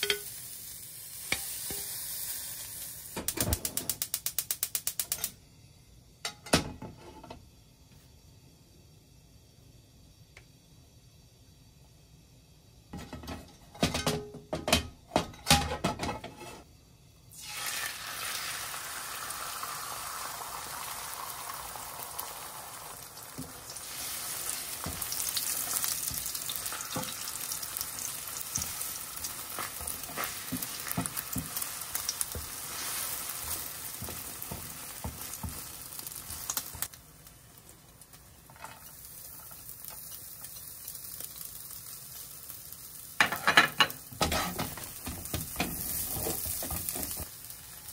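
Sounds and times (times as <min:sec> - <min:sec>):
eggs sizzling in oil: 0:00.0 - 0:05.1, 0:17.2 - 0:47.9
spatula scraping pan: 0:28.0 - 0:35.6, 0:44.2 - 0:47.3.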